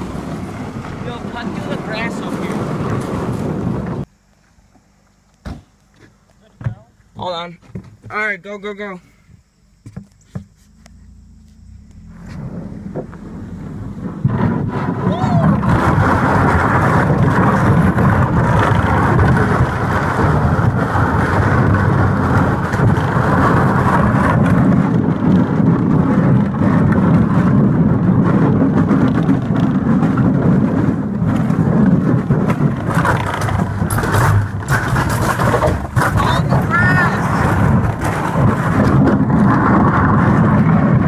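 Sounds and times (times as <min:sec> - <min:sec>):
boat hull scraping over gravel: 0:00.0 - 0:04.0, 0:11.5 - 0:41.0.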